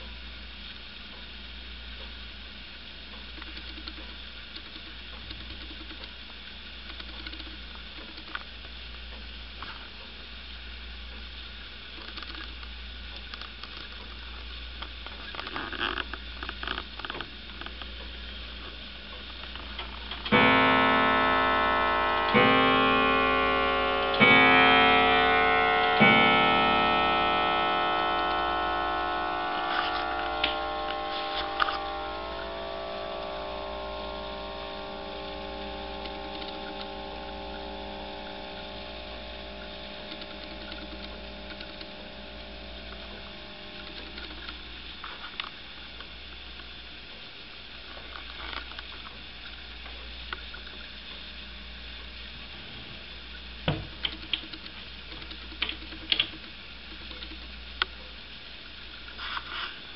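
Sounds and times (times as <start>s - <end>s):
soft clock clicks: 3.1s - 6.2s, 6.8s - 9.3s, 54.0s - 58.0s
clock striking: 20.2s - 44.6s.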